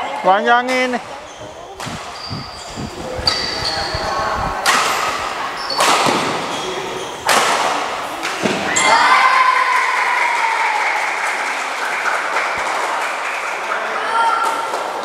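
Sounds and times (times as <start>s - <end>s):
racket hitting shuttlecock: 4.6s - 6.6s, 7.2s - 8.9s.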